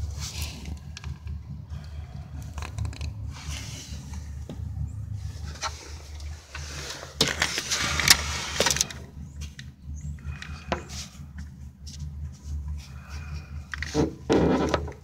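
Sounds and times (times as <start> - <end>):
loud scraping and rattling: 0.0 - 9.6, 10.2 - 15.0
car engine rumbling: 0.0 - 15.0.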